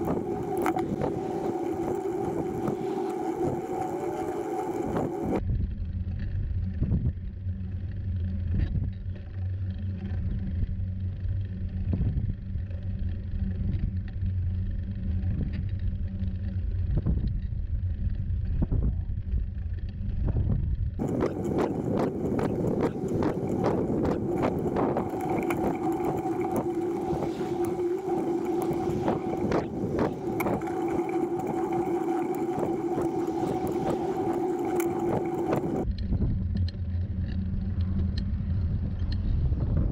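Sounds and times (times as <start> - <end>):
steady whine: 0.0 - 39.9
wind rumble on microphone: 0.0 - 39.9.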